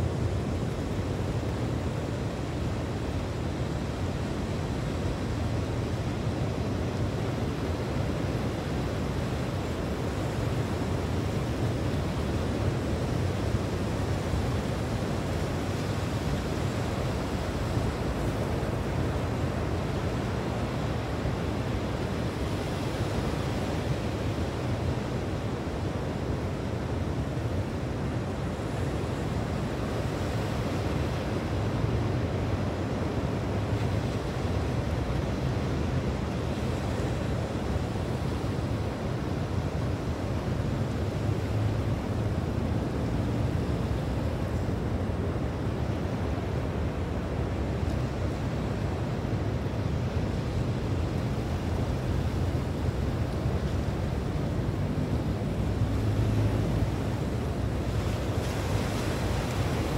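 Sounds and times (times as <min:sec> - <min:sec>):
sea surf: 0:00.0 - 0:59.9
wind: 0:00.0 - 0:59.9.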